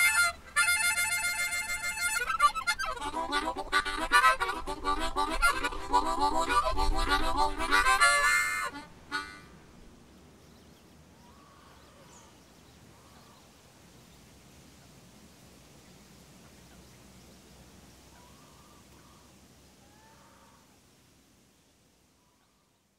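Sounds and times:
harmonica playing chords: 0.0s - 9.6s
faint background hiss: 0.0s - 22.9s.

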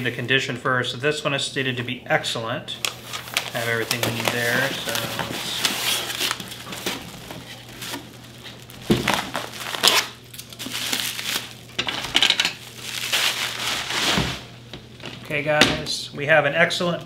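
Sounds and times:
bubble wrap crinkling: 2.8s - 15.1s.

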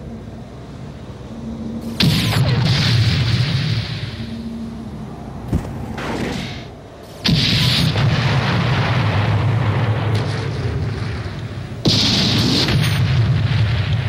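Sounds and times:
explosions rumbling: 1.8s - 4.4s, 5.5s - 14.0s.

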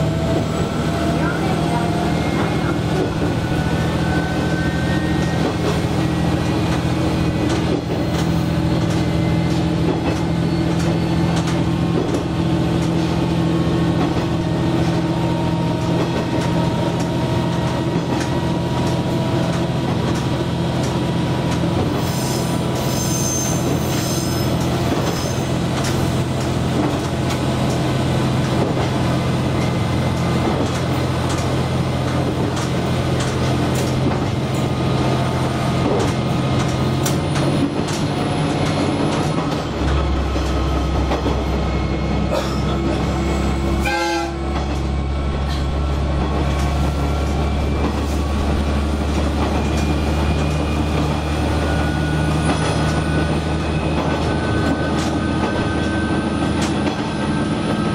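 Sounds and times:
diesel railcar engine drone: 0.0s - 57.9s
wheel squeal: 8.3s - 11.6s, 22.0s - 25.6s.

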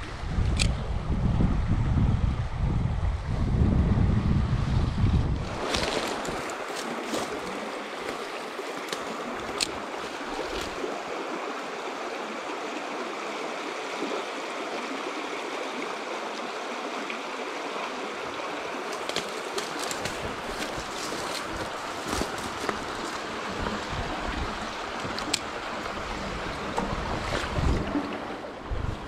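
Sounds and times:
wind rumble on microphone: 0.0s - 7.6s, 19.1s - 29.0s
stream rushing over stones: 5.2s - 29.0s.

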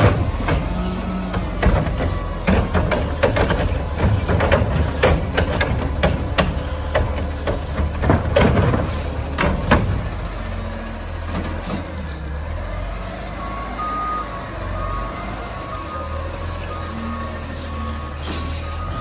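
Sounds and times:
metal clanks and bangs: 0.0s - 0.8s, 1.4s - 10.2s
diesel truck engine running: 0.0s - 19.0s.

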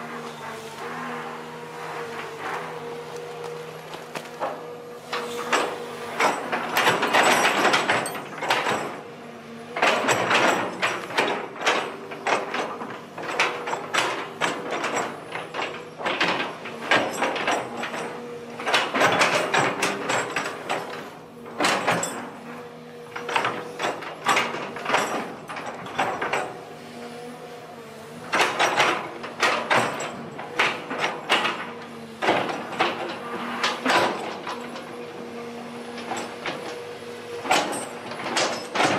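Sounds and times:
metallic clanking and scraping: 1.8s - 9.1s, 9.8s - 22.5s.

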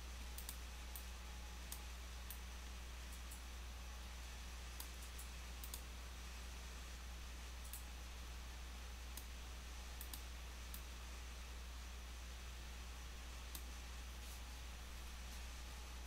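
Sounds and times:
low electrical hum: 0.0s - 16.0s
computer mouse clicks: 0.3s - 1.1s, 3.1s - 3.5s, 4.8s - 5.9s, 7.6s - 7.9s, 10.0s - 10.9s.

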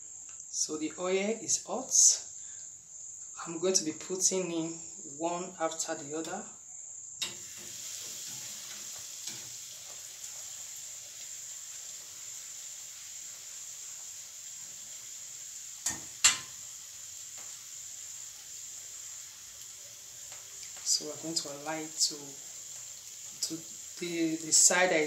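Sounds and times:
oil sizzling while deep-frying: 7.1s - 25.0s.

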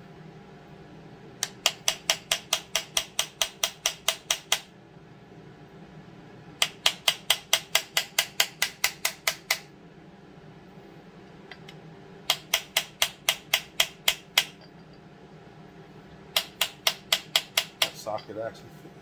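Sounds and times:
hammer tapping on metal socket: 1.4s - 4.7s, 6.6s - 9.7s, 11.5s - 14.8s, 16.4s - 18.3s.

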